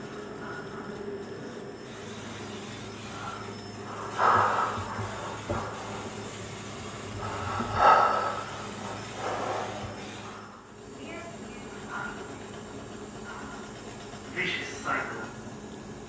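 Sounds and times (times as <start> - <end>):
steady low hum: 0.0 - 16.0
breath-like noisy bursts: 0.3 - 15.1.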